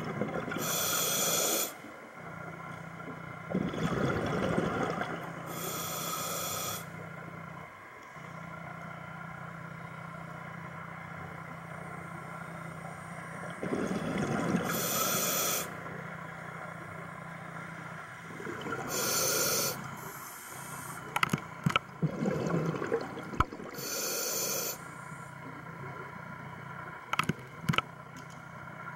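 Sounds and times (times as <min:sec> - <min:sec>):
steady low hum: 0:00.0 - 0:28.9
regulator inhalation hisses: 0:00.6 - 0:01.8, 0:05.5 - 0:06.9, 0:14.7 - 0:15.7, 0:18.9 - 0:21.1, 0:23.8 - 0:24.9
gurgle of exhaled bubbles: 0:03.5 - 0:05.4, 0:13.6 - 0:14.9, 0:18.3 - 0:19.1, 0:21.9 - 0:23.9
sharp clicks: 0:27.1 - 0:27.9.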